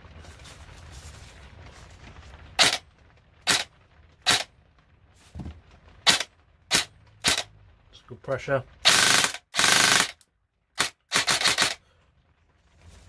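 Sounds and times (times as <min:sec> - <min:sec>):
airsoft gun dry-firing: 0:02.6 - 0:02.8, 0:03.5 - 0:03.7, 0:04.3 - 0:04.5, 0:06.0 - 0:07.5, 0:08.8 - 0:10.2, 0:10.8 - 0:11.8.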